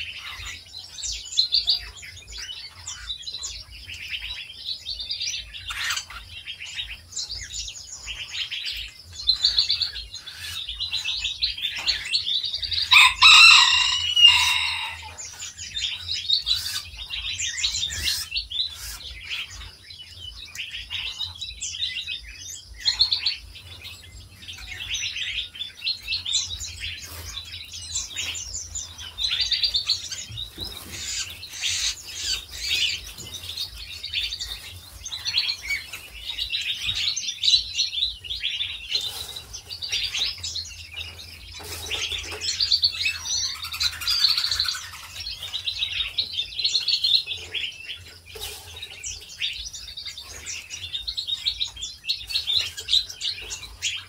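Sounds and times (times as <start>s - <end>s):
songbirds chirping and twittering: 0.0s - 54.0s
loud drawn-out bird call: 12.9s - 15.2s.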